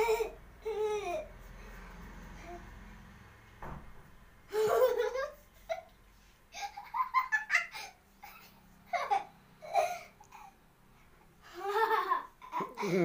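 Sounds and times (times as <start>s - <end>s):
boy laughing: 0.0s - 1.3s, 4.5s - 5.9s, 6.5s - 10.1s, 11.5s - 13.0s.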